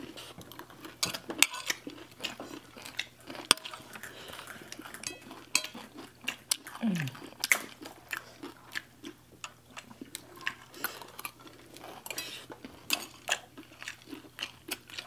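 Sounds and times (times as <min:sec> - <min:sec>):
cutlery clinking on ceramic plates: 0:05.0 - 0:05.8.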